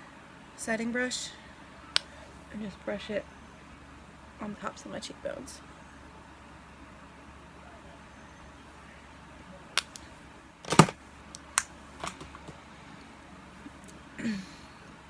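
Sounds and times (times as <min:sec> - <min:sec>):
makeup items clicking and knocking: 0:10.7 - 0:11.0.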